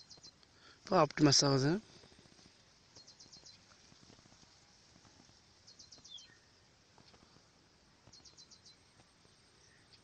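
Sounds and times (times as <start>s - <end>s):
faint high chirps: 5.6s - 7.2s.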